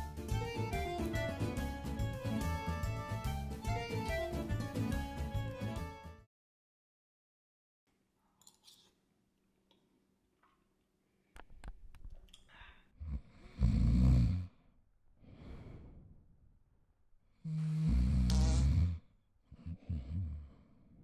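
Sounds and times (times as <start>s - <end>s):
man snoring: 13.0s - 14.6s, 17.4s - 20.7s.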